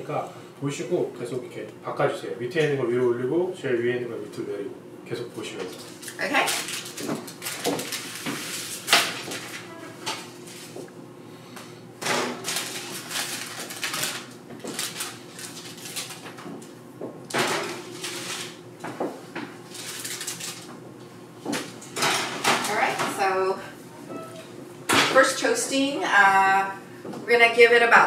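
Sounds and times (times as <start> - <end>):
paper rustling: 12.4 - 16.5, 19.7 - 20.7.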